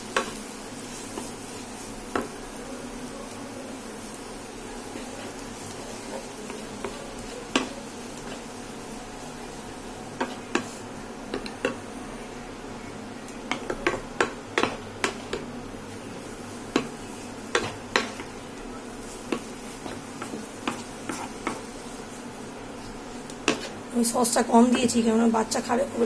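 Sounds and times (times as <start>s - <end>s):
utensil scraping a pan: 19.0s - 22.1s.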